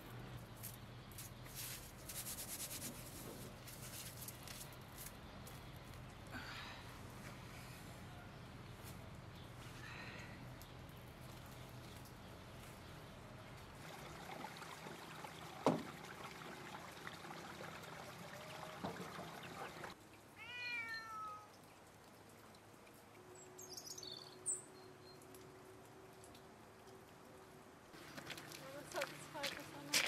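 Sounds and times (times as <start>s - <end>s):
rustling handling noise: 0.5s - 6.1s
cat meowing: 20.4s - 21.5s.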